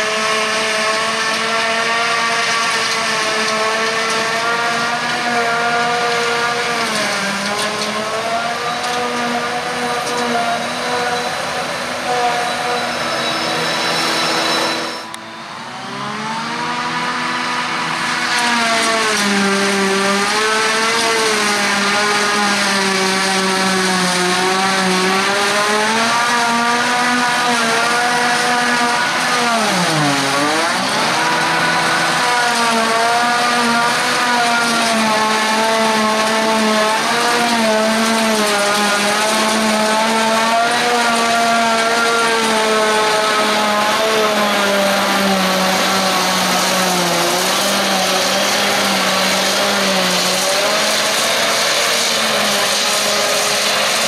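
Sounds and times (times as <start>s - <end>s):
harvester machine whine: 0.0s - 54.0s
rushing noise: 9.8s - 19.8s.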